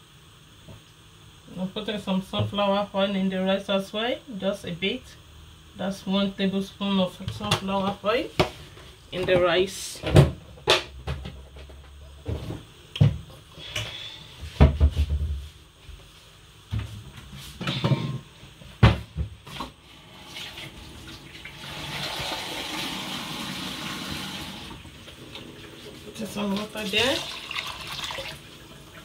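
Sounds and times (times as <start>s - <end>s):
kitchen tap running: 20.0s - 29.0s.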